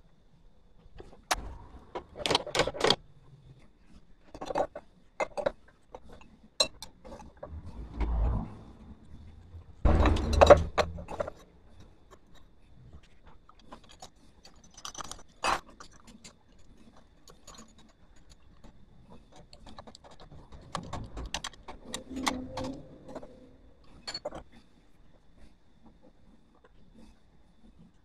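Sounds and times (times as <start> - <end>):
metal parts clinking: 9.9 - 11.4, 19.3 - 24.4.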